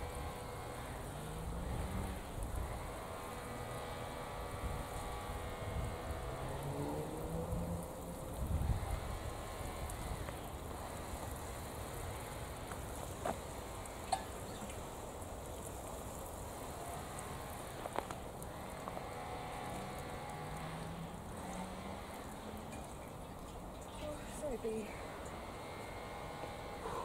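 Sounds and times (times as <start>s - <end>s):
water showering from watering can: 0.0s - 27.0s.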